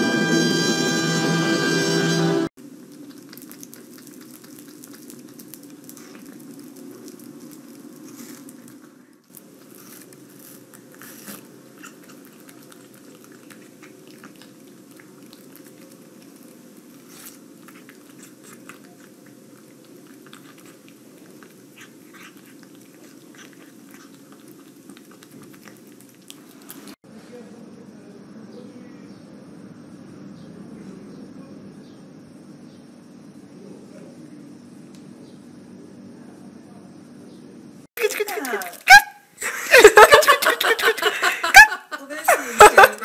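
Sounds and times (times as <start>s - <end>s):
cat chewing and licking: 2.6s - 27.0s.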